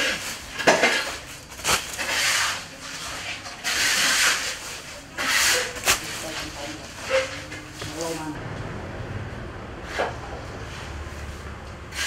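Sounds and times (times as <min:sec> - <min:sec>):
shovels scraping through fish: 0:00.0 - 0:08.3.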